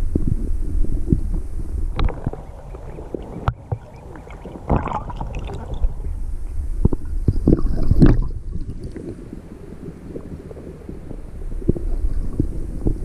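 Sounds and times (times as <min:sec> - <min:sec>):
underwater splashes and knocks: 0:00.0 - 0:06.2, 0:06.8 - 0:09.2
underwater low rumble: 0:00.0 - 0:13.0.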